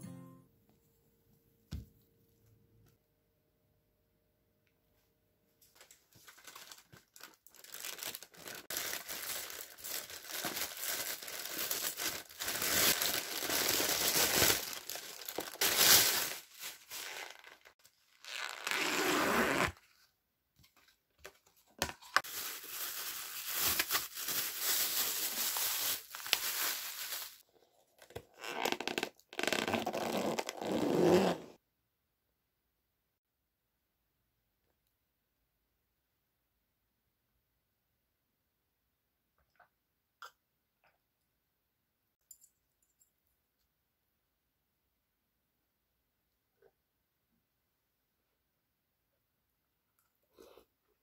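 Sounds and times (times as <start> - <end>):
plastic film tearing and crumpling: 5.8 - 18.9, 22.2 - 27.4.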